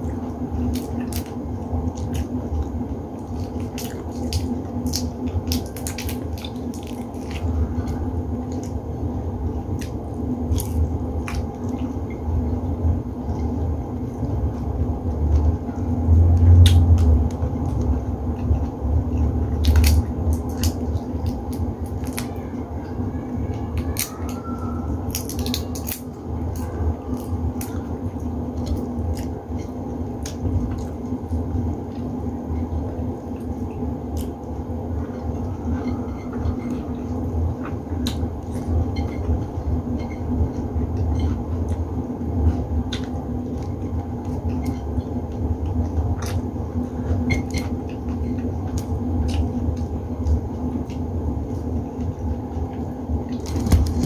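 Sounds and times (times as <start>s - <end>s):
chewing with mouth smacks: 0.0s - 12.3s, 13.2s - 23.0s, 23.6s - 54.0s
steady low hum: 0.0s - 54.0s
shrimp shells cracking: 25.1s - 26.1s.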